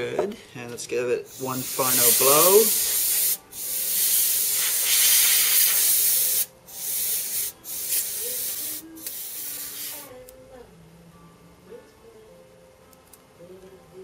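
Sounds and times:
compressed air spraying: 1.3s - 10.1s.

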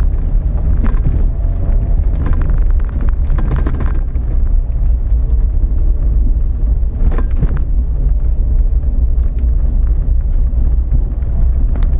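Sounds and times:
brief knocks and rattles: 0.0s - 1.4s, 2.1s - 4.3s
vehicle engine rumbling: 0.0s - 11.9s.

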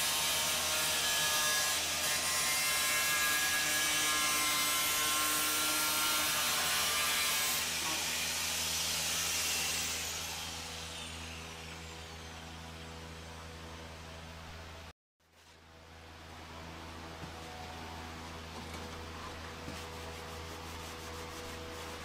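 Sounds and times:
grinder cutting fiberglass: 0.0s - 11.7s.

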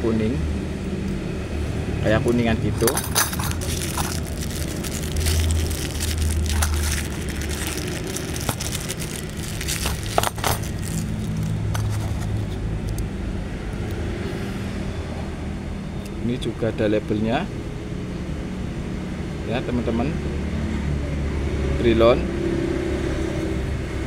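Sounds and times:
low engine rumble: 0.0s - 14.2s
plastic wrapping crinkling: 2.8s - 12.6s.

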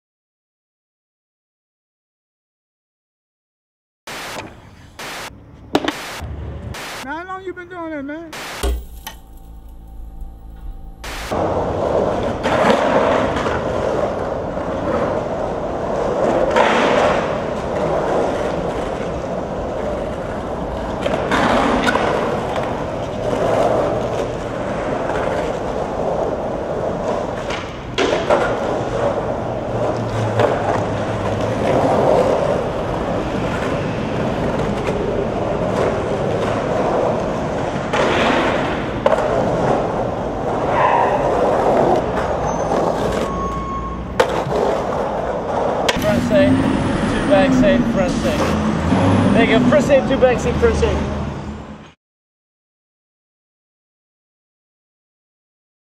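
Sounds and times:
skateboard wheels rolling on concrete: 11.4s - 48.6s.

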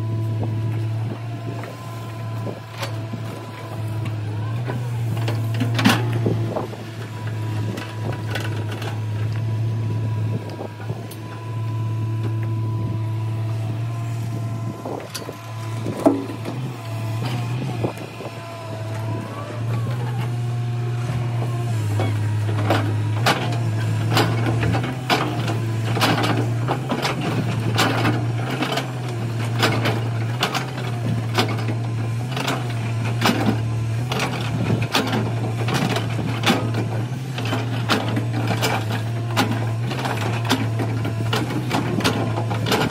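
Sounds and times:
excavator diesel engine running: 0.0s - 42.9s
hydraulic whines: 1.5s - 28.2s
bucket clanking and scraping: 15.0s - 16.6s.

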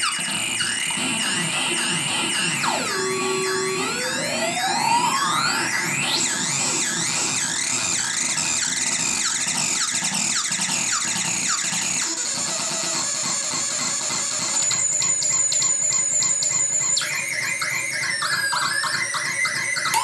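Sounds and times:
steady high whistle: 0.0s - 10.0s
synthesizer pitch warbling: 0.5s - 7.6s.

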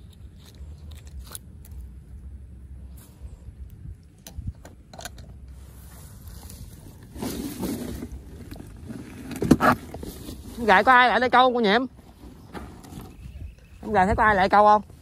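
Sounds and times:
wind rumble on microphone: 2.3s - 15.0s.

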